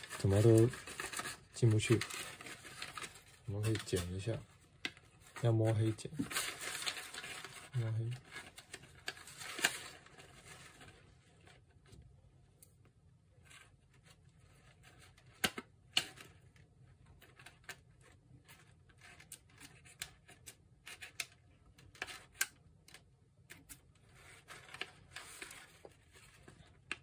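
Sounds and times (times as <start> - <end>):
plastic film crackling: 0.0 - 11.5.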